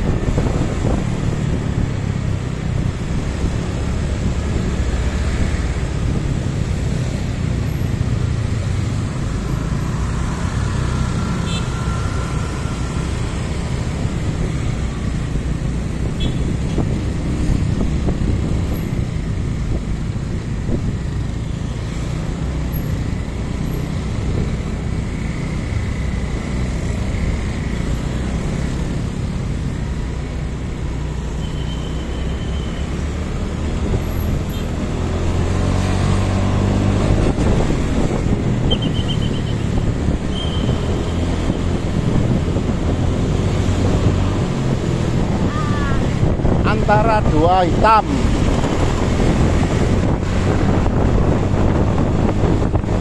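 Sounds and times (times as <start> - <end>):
motorcycle engine rumbling: 0.0 - 30.7
passing cars and scooters: 0.0 - 53.0
road noise: 0.0 - 53.0.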